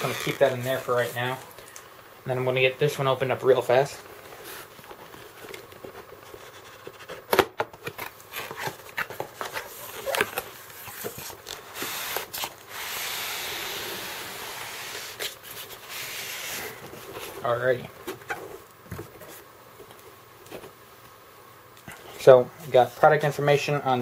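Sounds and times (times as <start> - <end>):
foam scraping cardboard: 11.1 - 17.4.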